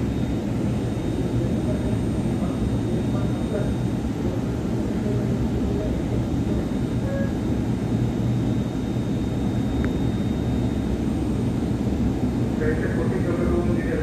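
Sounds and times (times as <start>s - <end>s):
thin high whine: 0.0s - 14.0s.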